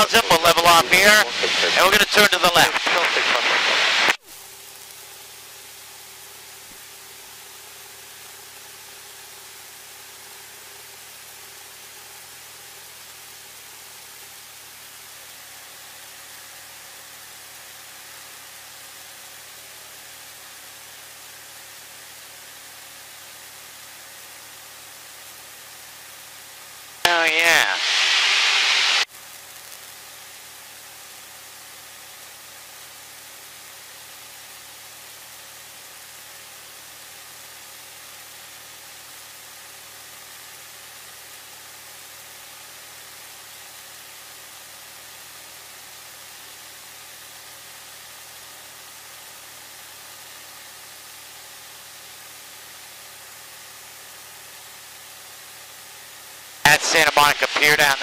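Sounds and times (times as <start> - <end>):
loud burst of voice: 0.0 - 4.1, 27.1 - 29.0, 56.7 - 58.0
headset intercom hiss: 0.0 - 4.2, 27.1 - 29.1, 56.7 - 58.0
faint aircraft engine drone: 0.0 - 11.8.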